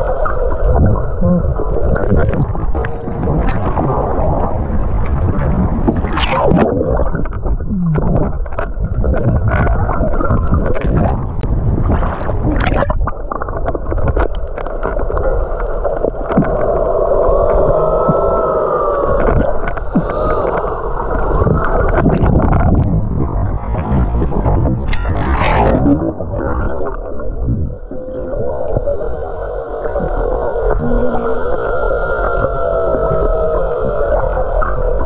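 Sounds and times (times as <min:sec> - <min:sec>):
low wavering moan: 0:00.0 - 0:05.8, 0:16.4 - 0:35.0
water sloshing and gurgling: 0:00.0 - 0:35.0.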